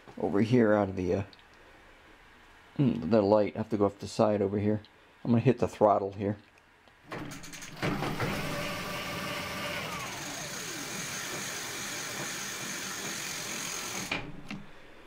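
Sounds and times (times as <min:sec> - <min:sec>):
electric bike motor whining: 0:08.2 - 0:14.2.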